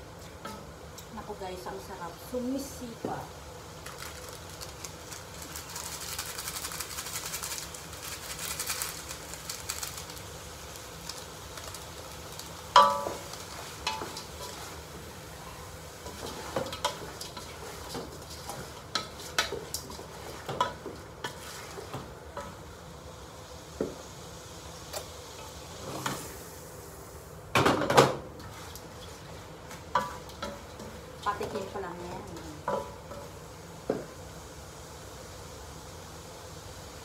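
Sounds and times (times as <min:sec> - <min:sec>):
shrimp sizzling in pot: 0:00.0 - 0:37.0
metal pot clang: 0:12.8 - 0:13.2.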